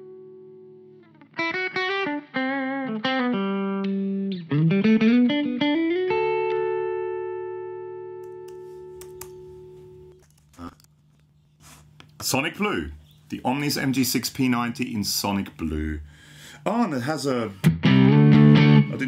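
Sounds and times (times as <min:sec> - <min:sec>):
electric guitar lead phrase: 0:00.0 - 0:08.2, 0:17.6 - 0:19.0.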